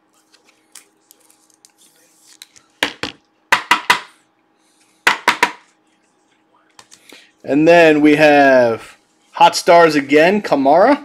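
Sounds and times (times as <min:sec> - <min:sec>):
trading cards rustling: 0:00.2 - 0:02.8.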